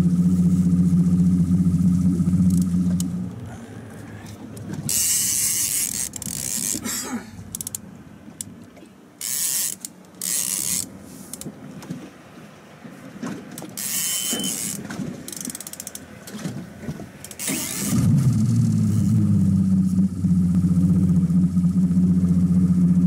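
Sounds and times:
boat motor running: 0.0 - 9.0, 16.0 - 23.0
fishing reel bursts: 4.9 - 6.8, 9.2 - 10.9, 13.8 - 16.0, 17.4 - 18.0.

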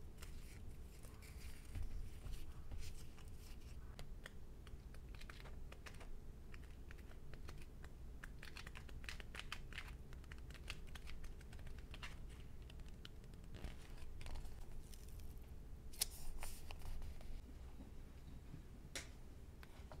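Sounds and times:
paper pages leafed through: 8.4 - 17.4.

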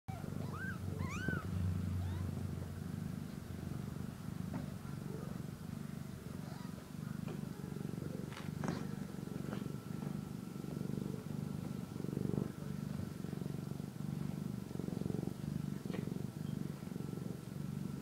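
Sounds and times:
kitten meowing: 0.1 - 2.4
kitten purring: 0.1 - 18.0.

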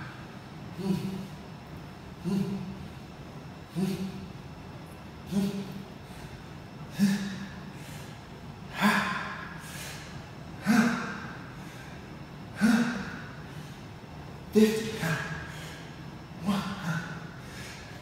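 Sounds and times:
man's forceful exhalations: 0.0 - 1.5, 5.3 - 13.8.

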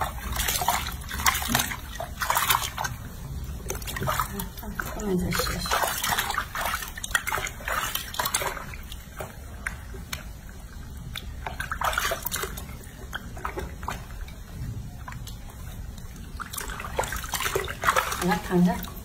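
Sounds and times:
water splashing in a sink: 0.0 - 19.0.

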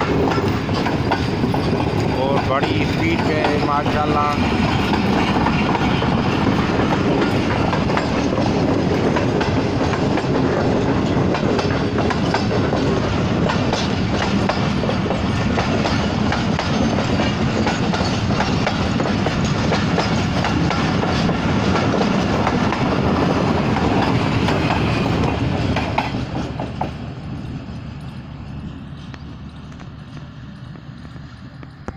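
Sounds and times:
train wheels clattering over rail joints: 0.0 - 31.9.

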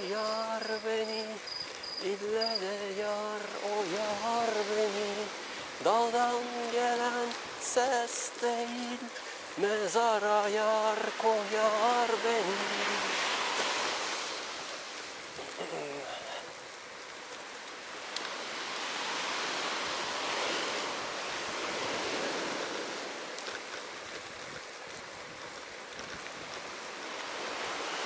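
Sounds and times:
faint voice: 15.4 - 16.5.

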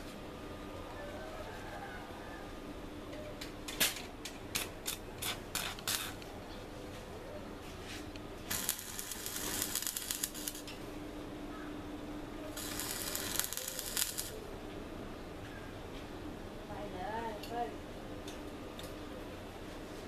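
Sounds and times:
crackling sizzle of welding arc: 3.4 - 7.0, 7.9 - 10.9, 12.4 - 14.6
welding arc crackling: 4.5 - 6.3, 8.4 - 10.8, 12.5 - 14.5.

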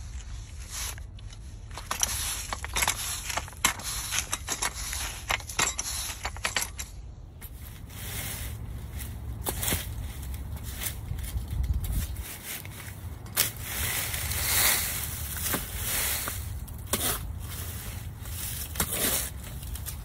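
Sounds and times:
garden tool scraping leaves: 0.0 - 6.4, 7.4 - 20.0
footsteps crunching on dry leaves: 7.4 - 20.0.

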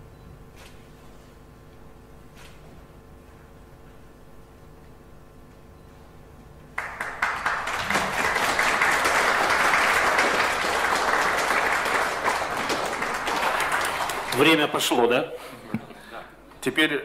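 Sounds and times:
group of people applauding: 6.8 - 15.0.

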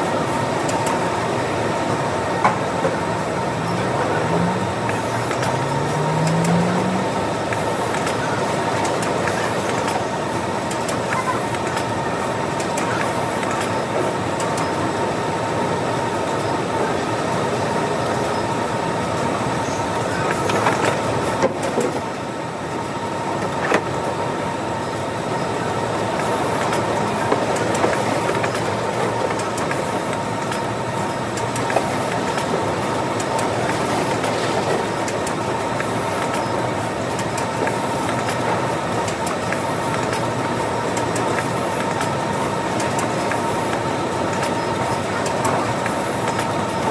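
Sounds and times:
constant high hum: 0.0 - 46.9
conveyor belts and packing machine: 0.0 - 46.9.

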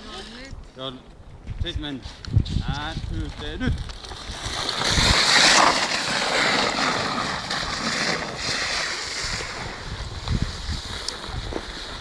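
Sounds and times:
sled sliding on snow: 3.7 - 12.0.

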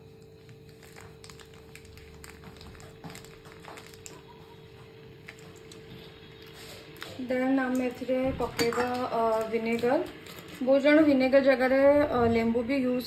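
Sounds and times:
plastic sachet crinkling: 0.0 - 8.0, 8.7 - 10.7
steady low hum: 0.0 - 13.0.

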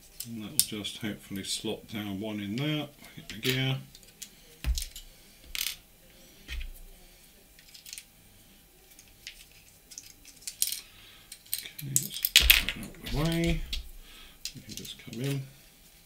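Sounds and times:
small model parts clicking: 7.6 - 8.1, 8.9 - 12.4.

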